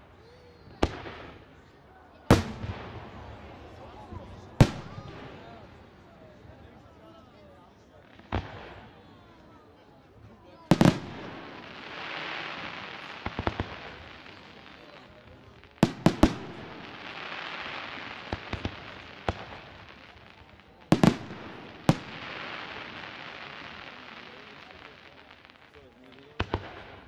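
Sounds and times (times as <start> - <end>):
firework hiss: 10.7 - 25.7.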